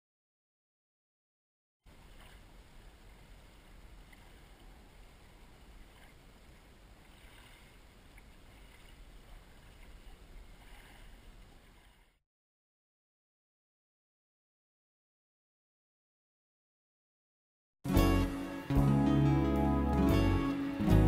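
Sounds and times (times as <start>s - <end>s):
lake water sloshing and lapping: 1.9s - 12.2s
water splashes: 1.9s - 12.2s.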